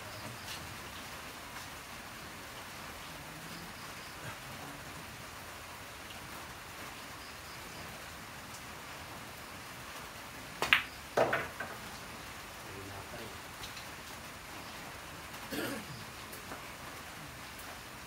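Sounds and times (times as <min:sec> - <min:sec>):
steady hiss: 0:00.0 - 0:18.0
ball dropping into pocket: 0:10.6 - 0:11.8
balls clacking together: 0:10.6 - 0:11.8.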